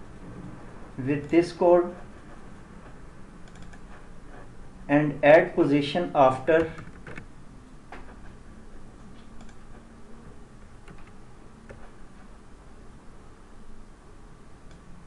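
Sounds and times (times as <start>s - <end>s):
faint steady hum: 0.0s - 15.0s
keyboard and mouse clicks: 3.4s - 4.0s, 6.6s - 7.3s, 9.2s - 9.8s, 10.8s - 11.9s.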